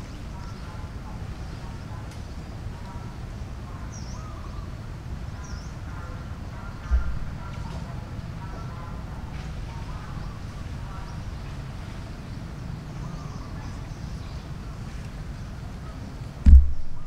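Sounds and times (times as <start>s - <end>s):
low forest rumble: 0.0s - 17.0s.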